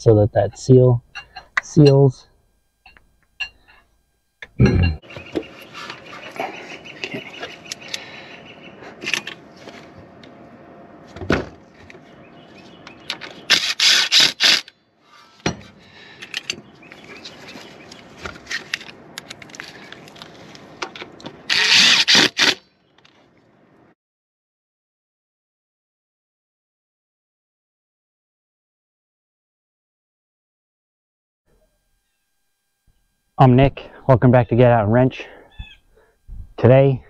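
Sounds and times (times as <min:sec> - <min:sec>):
cordless driver running in bolts: 0:13.1 - 0:14.7, 0:21.5 - 0:22.6
tools and parts knocking: 0:15.4 - 0:15.7.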